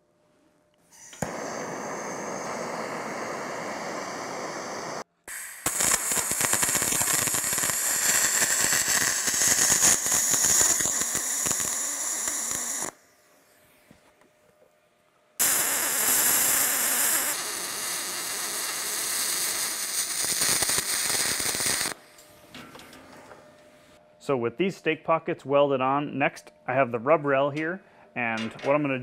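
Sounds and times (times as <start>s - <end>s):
welding arc crackling: 1.0s - 13.0s, 15.4s - 22.0s.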